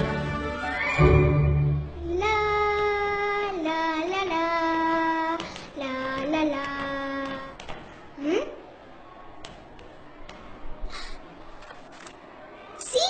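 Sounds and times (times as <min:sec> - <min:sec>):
girl singing wordless held notes: 0:02.0 - 0:07.6.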